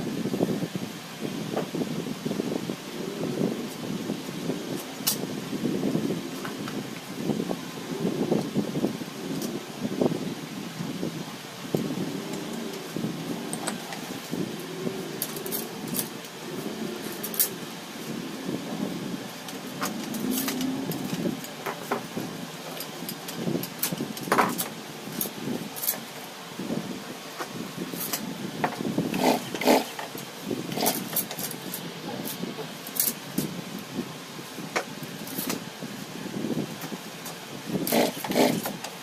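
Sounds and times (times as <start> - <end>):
low traffic rumble: 0.0 - 39.0.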